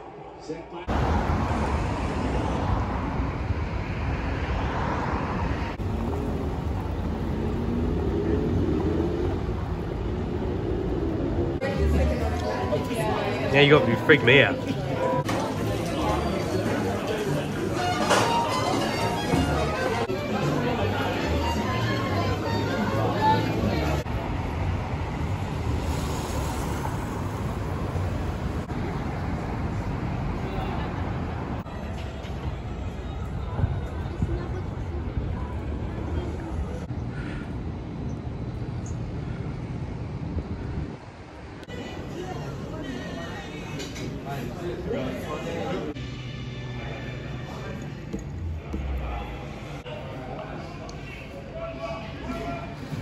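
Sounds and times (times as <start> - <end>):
city street traffic rumble: 0.0 - 53.0
wind rumbling on microphone: 0.9 - 11.6, 32.4 - 41.7.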